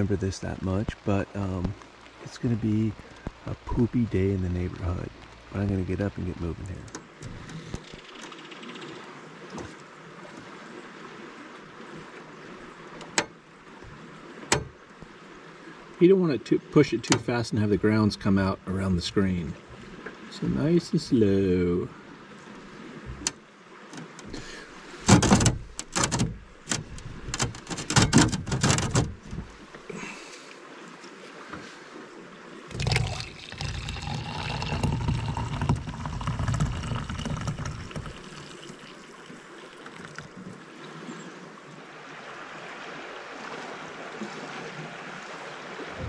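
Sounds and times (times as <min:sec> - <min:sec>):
coffee pouring into mug: 0:32.7 - 0:39.0, 0:39.8 - 0:40.3.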